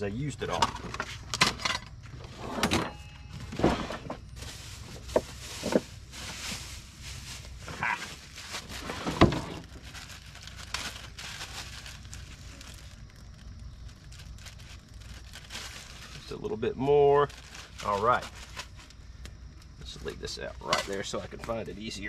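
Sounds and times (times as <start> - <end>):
items knocking and clunking: 0.5 - 6.0, 8.5 - 9.9.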